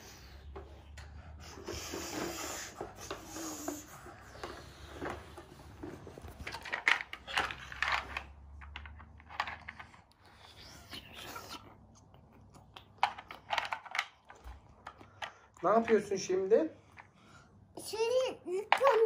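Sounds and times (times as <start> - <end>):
plastic toy blocks clicking: 6.3 - 10.2, 12.8 - 16.1.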